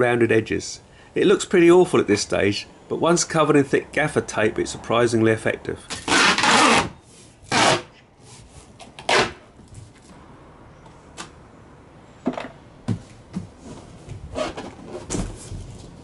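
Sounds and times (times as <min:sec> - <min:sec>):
tape ripping off roll: 0:05.9 - 0:08.0, 0:08.8 - 0:09.5, 0:14.3 - 0:15.9
hands knocking and rustling on cardboard: 0:12.3 - 0:16.0.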